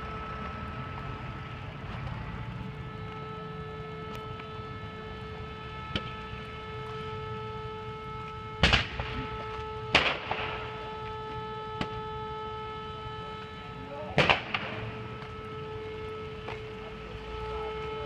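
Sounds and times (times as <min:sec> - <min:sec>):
burning car explosive bangs: 0:08.6 - 0:09.3, 0:09.9 - 0:10.7, 0:14.2 - 0:14.9.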